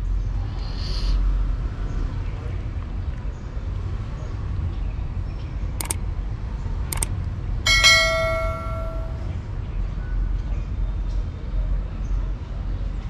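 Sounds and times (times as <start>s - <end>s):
bright bell ding: 7.7s - 9.3s.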